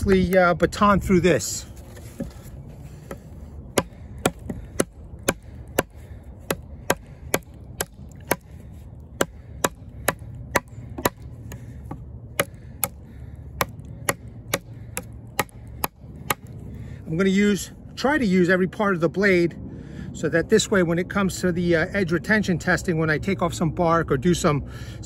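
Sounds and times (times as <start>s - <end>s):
knife chopping into wood: 2.0s - 8.6s, 9.2s - 16.6s.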